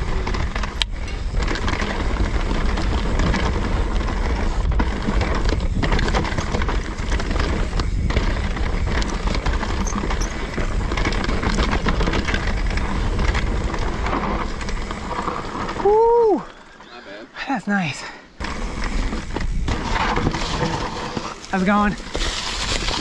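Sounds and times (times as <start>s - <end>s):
wind buffeting microphone: 0.0s - 16.5s
bike rattling and knocking: 0.0s - 16.9s, 18.4s - 23.0s
tyres rolling over dirt: 0.0s - 17.4s, 18.3s - 23.0s.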